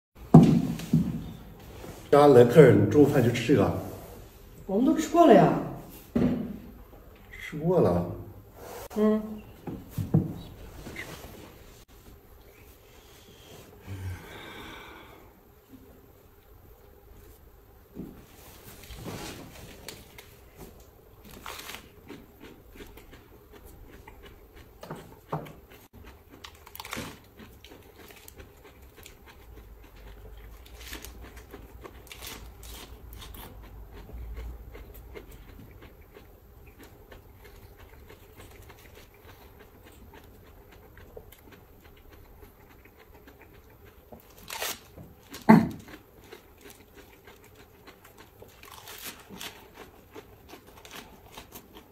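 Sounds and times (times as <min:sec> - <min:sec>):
man chewing lettuce: 0:18.3 - 0:51.9.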